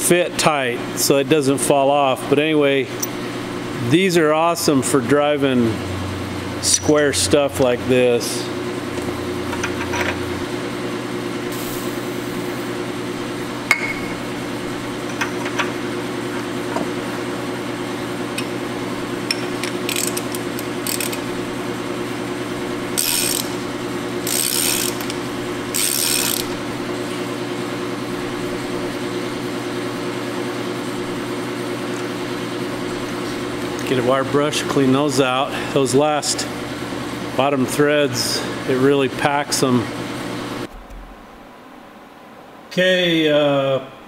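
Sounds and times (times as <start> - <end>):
steady hum: 0.0 - 44.0
ratchet clicking: 19.8 - 21.3, 23.0 - 23.6, 24.2 - 26.5.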